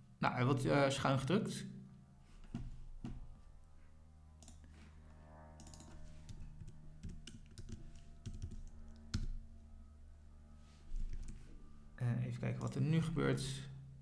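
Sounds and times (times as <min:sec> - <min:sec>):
keyboard typing clicks: 0:05.6 - 0:09.4.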